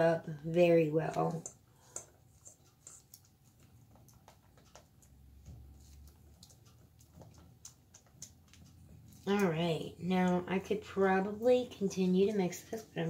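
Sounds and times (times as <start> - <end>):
utensil scraping steel bowl: 1.0 - 3.2.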